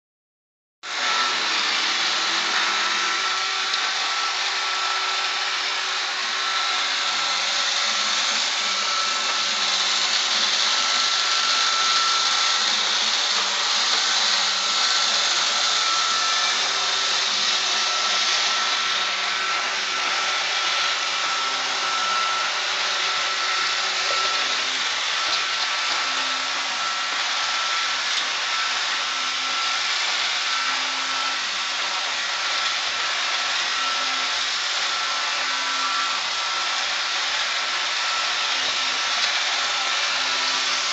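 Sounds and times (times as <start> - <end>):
robot vacuum whirring: 0.9 - 40.9.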